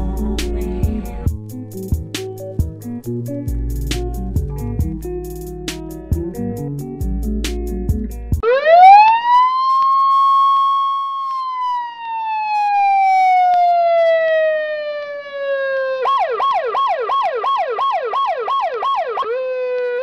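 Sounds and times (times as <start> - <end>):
siren wailing: 8.4 - 20.0.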